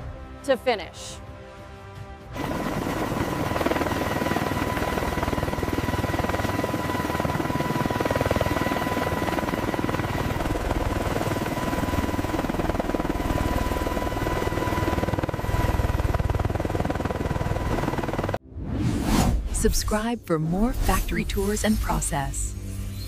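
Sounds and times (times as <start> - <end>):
helicopter rotor chop: 2.4 - 18.4.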